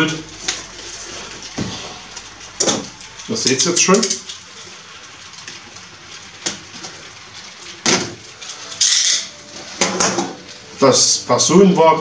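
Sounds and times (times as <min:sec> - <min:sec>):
packaging crackle: 0:00.2 - 0:10.9.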